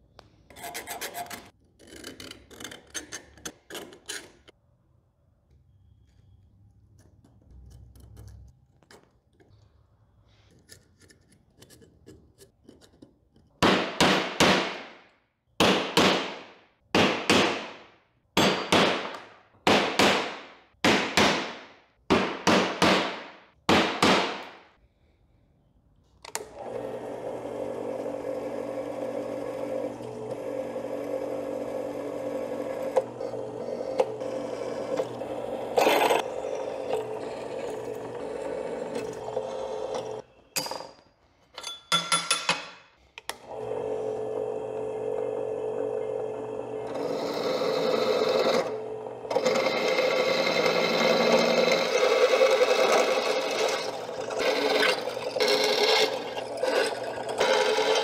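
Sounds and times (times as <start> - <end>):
calipers scratching steel: 0.5 - 4.5
drill press drilling steel: 26.6 - 40.2, 43.5 - 58.0.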